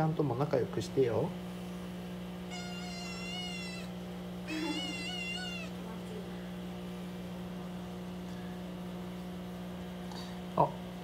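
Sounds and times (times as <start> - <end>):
steady low hum: 0.0 - 11.0
kitten meowing: 2.5 - 5.9.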